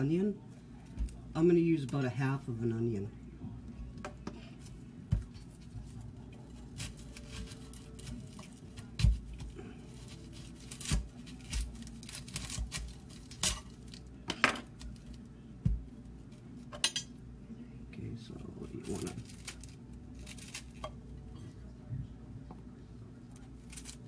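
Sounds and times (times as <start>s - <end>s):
onion skin crackling and tearing: 5.1s - 16.6s, 18.6s - 21.0s, 23.3s - 24.0s.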